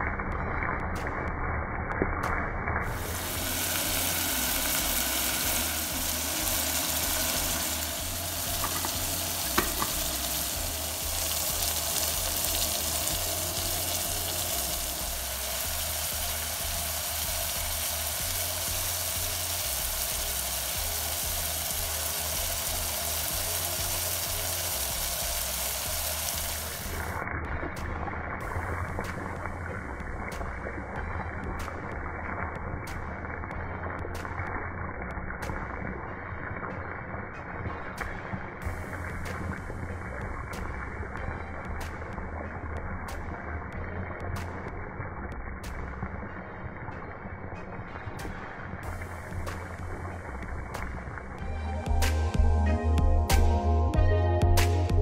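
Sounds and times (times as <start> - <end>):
meat and onions sizzling: 2.8 - 27.2.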